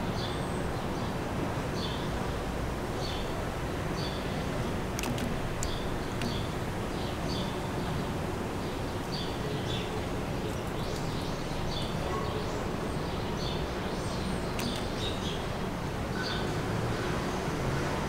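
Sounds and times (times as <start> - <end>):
small birds chirping: 5.0 - 15.6.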